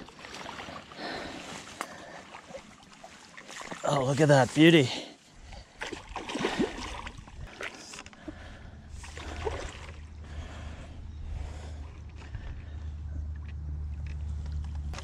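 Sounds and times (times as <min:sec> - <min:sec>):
fish splashing at water surface: 0:05.8 - 0:08.0, 0:09.0 - 0:10.2
low steady rumble: 0:08.2 - 0:15.0.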